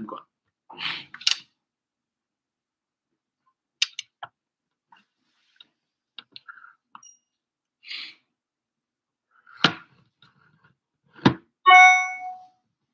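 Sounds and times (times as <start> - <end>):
electronic chime: 11.7 - 12.5.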